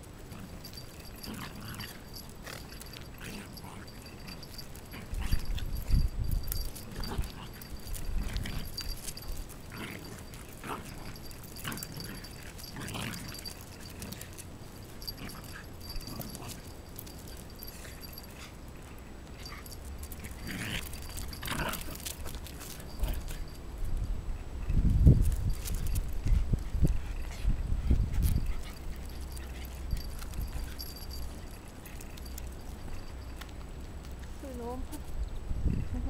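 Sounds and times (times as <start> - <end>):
dogs vocalizing: 0.3 - 23.5.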